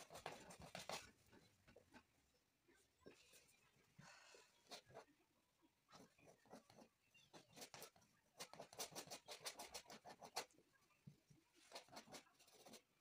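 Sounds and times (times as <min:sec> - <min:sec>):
paintbrush scratchy strokes: 0:00.0 - 0:01.5, 0:11.4 - 0:13.0.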